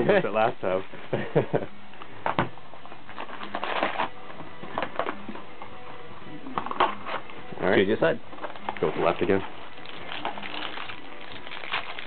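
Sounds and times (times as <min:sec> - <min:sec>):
shrink-wrap crinkling: 0:08.3 - 0:12.0.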